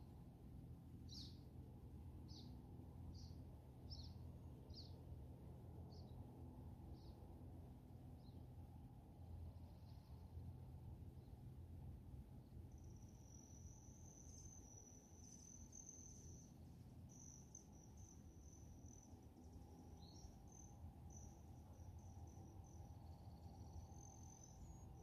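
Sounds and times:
low background rumble: 0.0s - 25.0s
lower insect trill: 12.4s - 25.0s
high-pitched insect trill: 12.7s - 25.0s.

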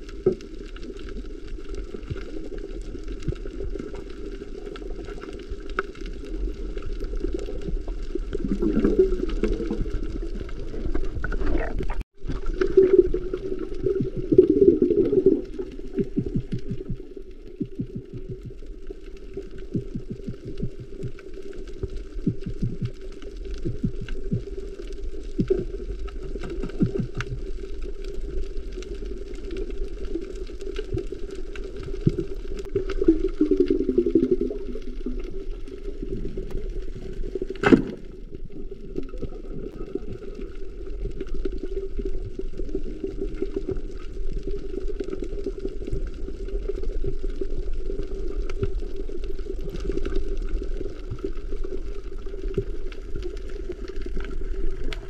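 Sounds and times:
muffled underwater noise: 0.0s - 55.0s
small clicks and crackles: 0.0s - 55.0s.

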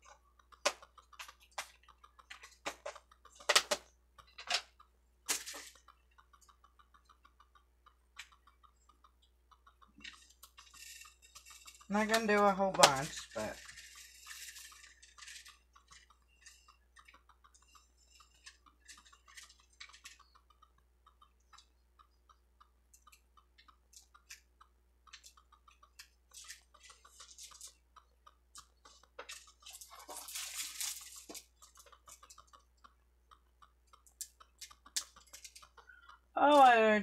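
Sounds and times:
small plastic clicks and taps: 0.0s - 36.8s
rustling: 28.6s - 32.6s.

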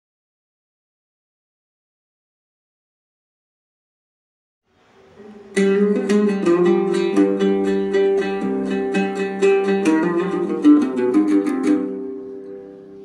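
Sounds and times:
plucked guitar music: 5.2s - 13.0s.

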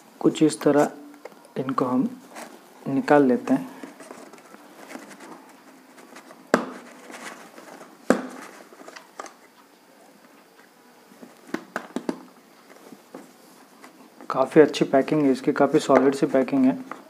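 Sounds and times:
packaging rustling: 2.2s - 10.6s.

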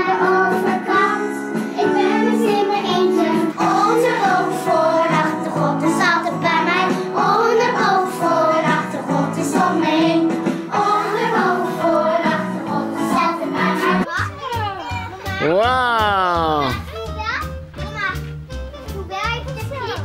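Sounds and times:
child singing: 0.0s - 15.6s
musical accompaniment: 0.0s - 20.0s.

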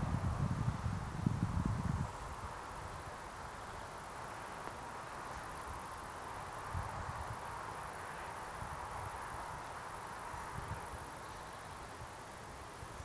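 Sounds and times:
wind buffeting microphone: 0.0s - 3.1s, 6.6s - 7.6s, 10.2s - 11.2s
soft steady hiss: 0.0s - 13.0s
crickets chirring: 0.1s - 13.0s.

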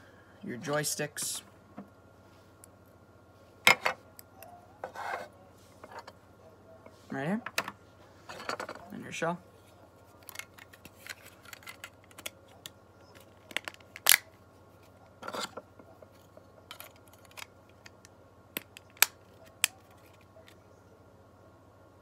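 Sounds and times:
plastic parts clicking: 10.2s - 12.4s.

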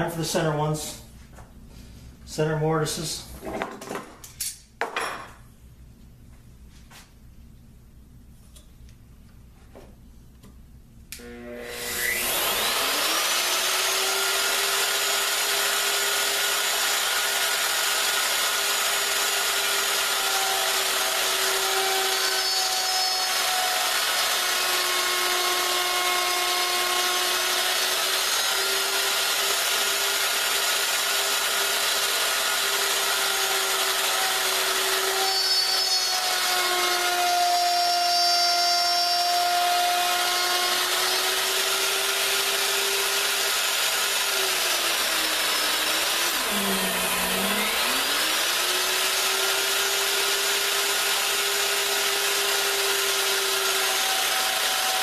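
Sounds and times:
router motor whine: 11.1s - 55.0s.

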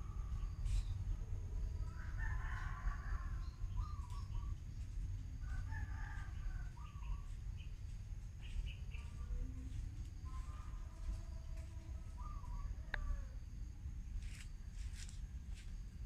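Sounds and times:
steady low rumble: 0.0s - 16.0s
bird calling: 3.4s - 4.6s, 12.1s - 13.2s.

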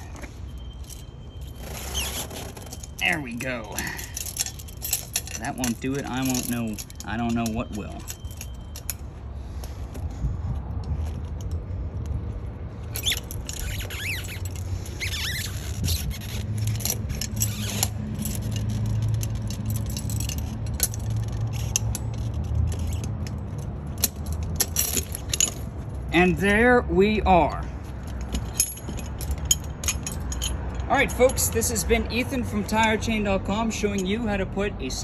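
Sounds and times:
short squeaks: 0.0s - 3.0s, 12.9s - 19.1s
steady low rumble: 0.0s - 33.1s
chain links clinking and scraping: 0.0s - 35.0s.

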